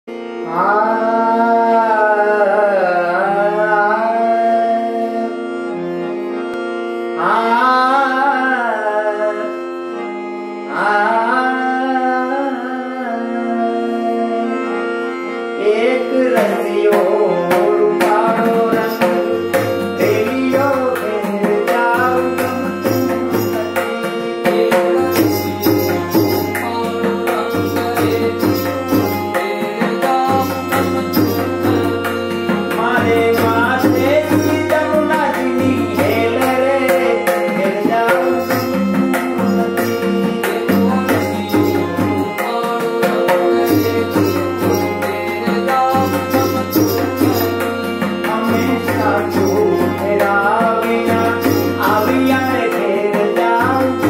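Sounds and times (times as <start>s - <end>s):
man singing: 0.1s - 6.0s, 7.0s - 15.0s, 15.6s - 54.0s
harmonium drone: 0.1s - 54.0s
tabla strokes: 17.5s - 52.6s.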